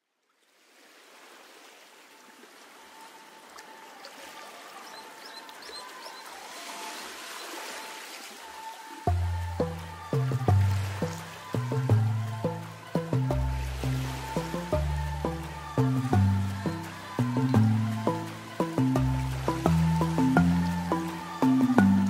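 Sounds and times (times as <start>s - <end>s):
bird-like chirps: 4.8s - 7.5s
rushing stream-like hiss: 12.4s - 22.0s.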